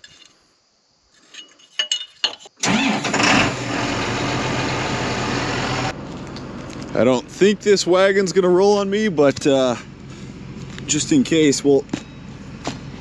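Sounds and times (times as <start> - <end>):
tractor diesel engine starting and idling: 2.6 - 11.5.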